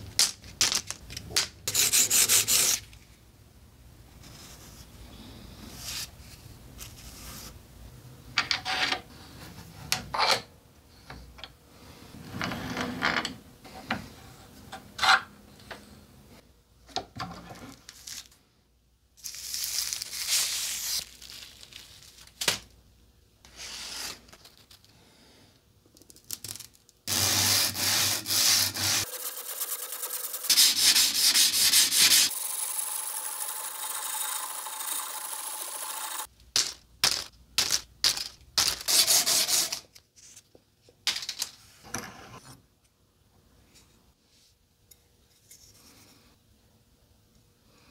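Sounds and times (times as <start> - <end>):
knife rubbing and scraping: 27.1 - 32.4.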